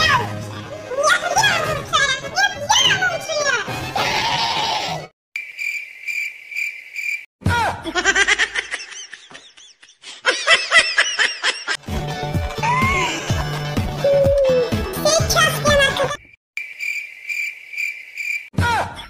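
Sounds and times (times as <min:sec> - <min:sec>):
child's voice: 0:00.0 - 0:00.3, 0:00.9 - 0:03.7, 0:14.1 - 0:16.2
music: 0:00.0 - 0:04.8, 0:11.8 - 0:16.2
cricket chirping: 0:05.4 - 0:07.3, 0:16.2 - 0:18.5.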